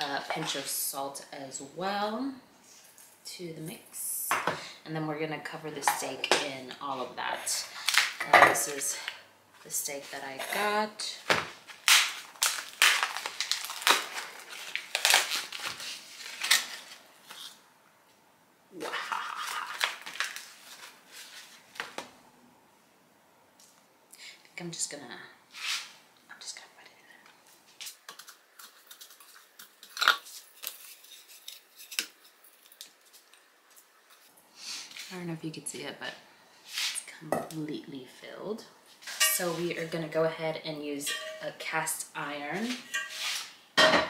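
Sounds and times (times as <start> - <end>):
plastic film crinkling: 11.5 - 17.6, 19.1 - 22.0, 27.7 - 35.2
peppercorns crackling in steel bowl: 28.1 - 33.4.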